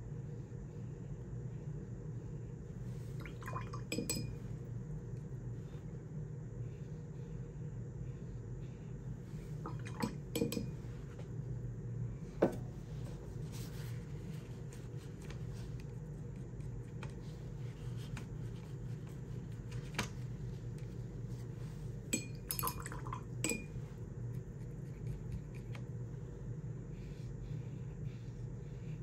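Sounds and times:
steady low hum: 0.0s - 29.0s
paintbrush clinking against glass: 3.9s - 4.4s, 10.3s - 10.8s, 22.2s - 23.8s.

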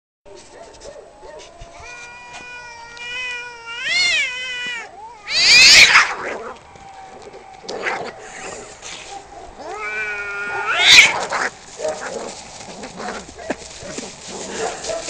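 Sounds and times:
cats yowling: 1.2s - 15.0s
cat screeching: 1.8s - 6.6s, 9.6s - 11.5s.

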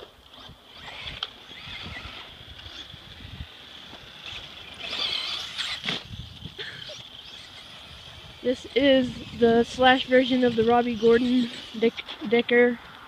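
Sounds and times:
electric motor whine: 0.0s - 12.5s
tyre noise on asphalt: 0.0s - 13.0s.

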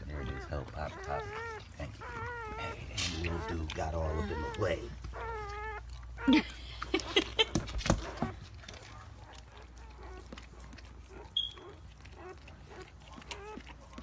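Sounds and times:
puppies squeaking and crying: 0.0s - 14.0s
short high squeak: 11.4s - 11.8s.

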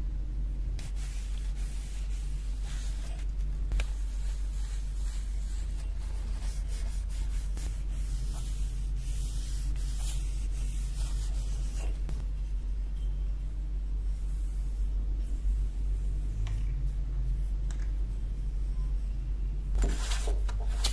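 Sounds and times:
steady low hum: 0.0s - 20.9s
hand rubbing strokes: 0.8s - 12.9s.

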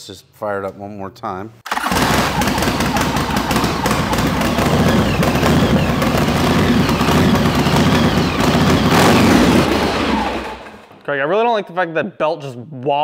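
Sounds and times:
motorcycle engine running loud: 1.9s - 10.8s.

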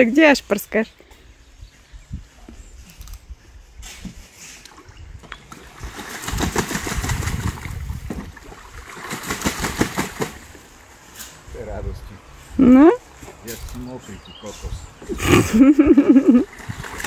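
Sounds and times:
water sloshing: 4.2s - 11.5s, 14.9s - 17.0s
duck wings splashing water: 5.5s - 10.7s, 16.4s - 17.0s.

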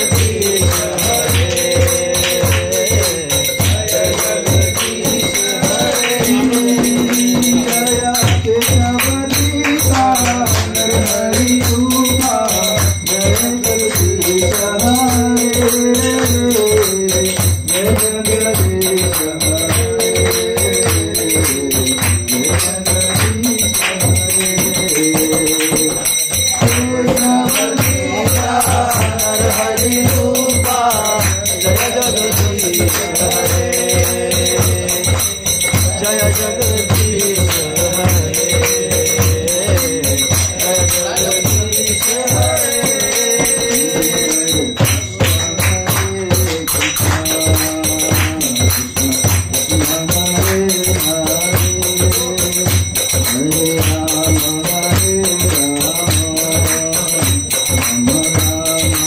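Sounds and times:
devotional melody: 0.0s - 59.0s
jingling metal percussion: 0.0s - 59.0s
mridanga drum beating: 0.0s - 59.0s.

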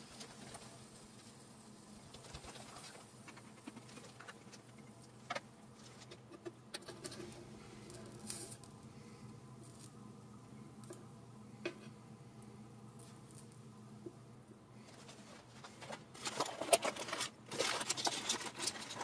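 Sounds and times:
food crackling on a griddle: 0.0s - 8.8s, 9.6s - 10.0s, 12.9s - 13.6s
low steady hum: 0.0s - 19.0s.

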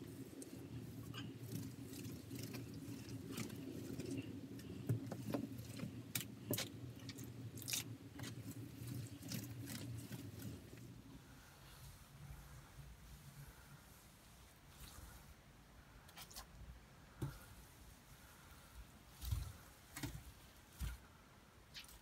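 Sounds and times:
sponge scrubbing wet grime: 0.0s - 15.5s
low steady hum: 0.0s - 22.0s.

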